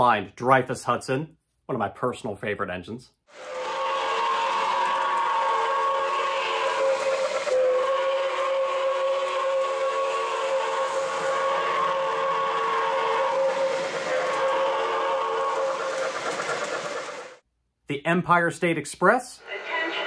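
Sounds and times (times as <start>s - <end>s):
model trains running on track: 3.3s - 17.4s
model train chime whistle: 3.4s - 17.4s.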